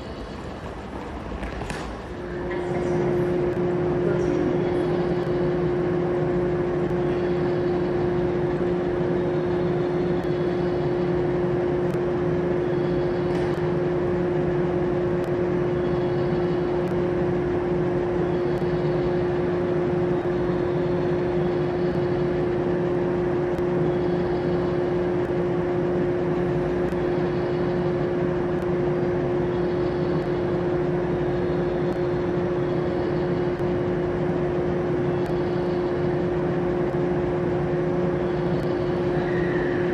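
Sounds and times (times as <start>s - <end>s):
train equipment hum and whine: 0.0s - 39.9s.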